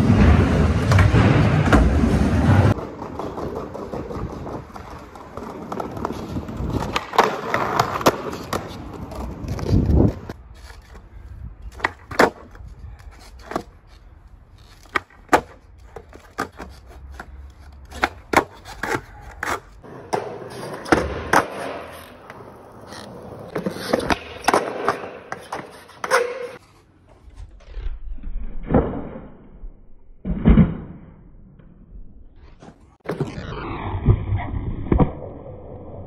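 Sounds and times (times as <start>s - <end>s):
skateboard wheels rolling: 0.0s - 27.7s, 32.4s - 36.0s
skateboard clacking on concrete: 2.7s - 11.1s, 14.7s - 26.6s.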